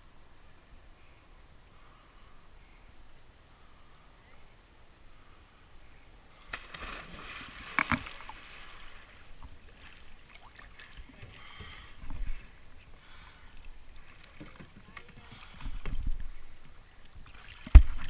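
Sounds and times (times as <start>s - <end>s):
splash and water churning: 6.4s - 11.4s, 17.3s - 18.0s
water sloshing: 6.4s - 18.0s.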